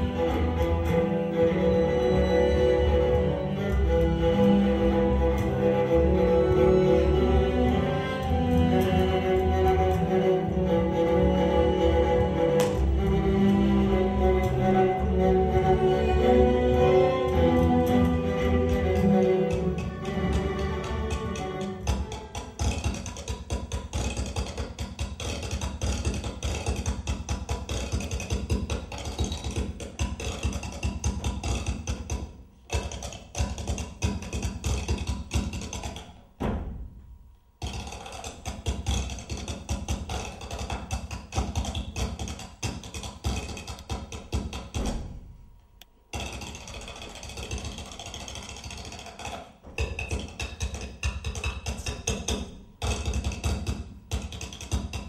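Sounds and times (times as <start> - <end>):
percussive music: 0.0 - 55.0.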